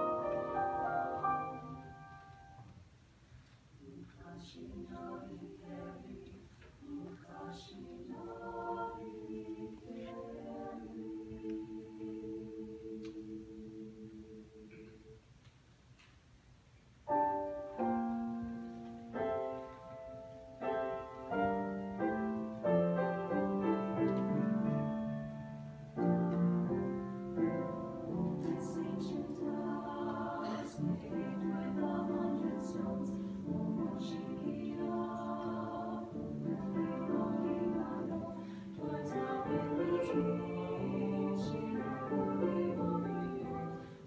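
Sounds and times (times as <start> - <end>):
mixed choir singing: 0.0 - 2.2, 3.8 - 15.2, 27.3 - 44.0.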